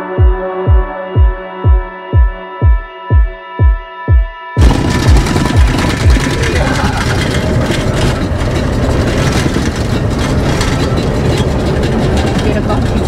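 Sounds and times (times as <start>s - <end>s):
deep thumps: 0.2s - 13.0s
in-cab road and engine rumble: 4.6s - 13.0s.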